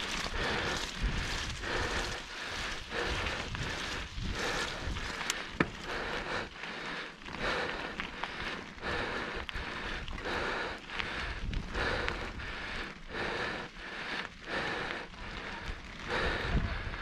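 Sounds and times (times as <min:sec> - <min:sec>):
wind on microphone: 0:00.0 - 0:05.7, 0:11.3 - 0:12.6, 0:15.6 - 0:17.0
tyres rolling over dirt: 0:00.0 - 0:06.4
bike clicks: 0:00.0 - 0:17.0.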